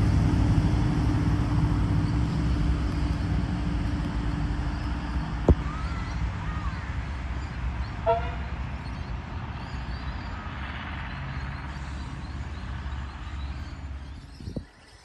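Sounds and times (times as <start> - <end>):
engine rumble: 0.0 - 15.0
horn toot: 8.0 - 8.5.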